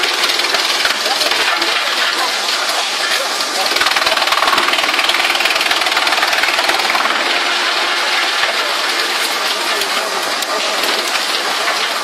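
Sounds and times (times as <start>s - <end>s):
wood chipper chipping wood: 0.0s - 12.0s.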